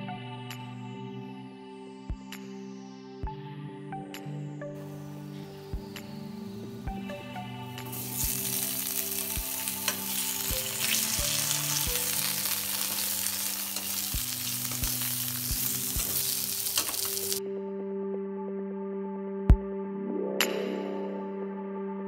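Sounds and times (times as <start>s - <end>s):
potatoes sizzling in oil: 7.9s - 17.4s.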